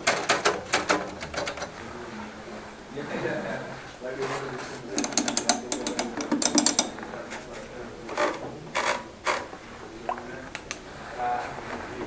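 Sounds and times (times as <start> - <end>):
heavy typewriter clunks: 0.0 - 1.7, 5.0 - 7.0
typewriter key clacks: 0.0 - 1.7, 5.0 - 6.9.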